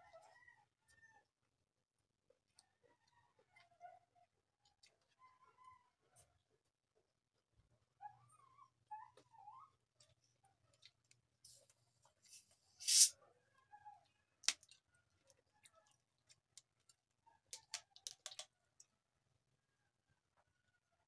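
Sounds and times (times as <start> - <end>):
carbonation gas hissing: 12.8 - 13.1.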